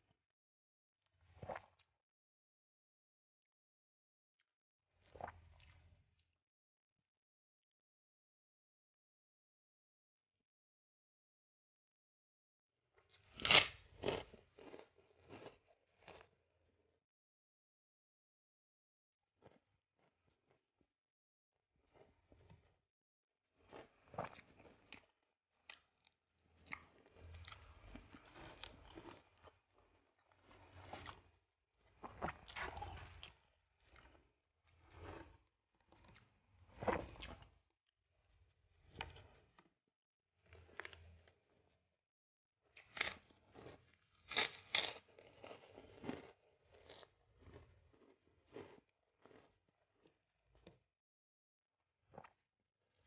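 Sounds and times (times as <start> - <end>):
person chewing crunchy food: 13.2 - 16.3, 23.6 - 31.3, 31.9 - 35.4, 42.8 - 50.8
close chewing with mouth noises: 31.9 - 33.3, 42.9 - 50.2.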